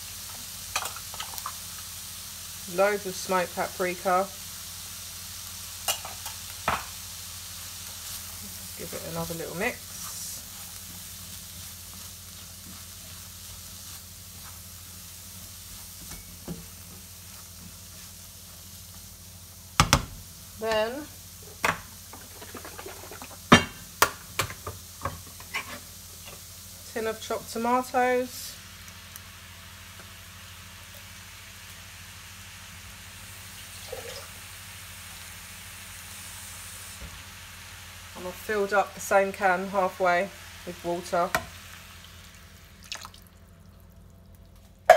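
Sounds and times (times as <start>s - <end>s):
vegetables sizzling in frying pan: 0.0s - 42.8s
spatula scraping pan: 25.4s - 25.9s.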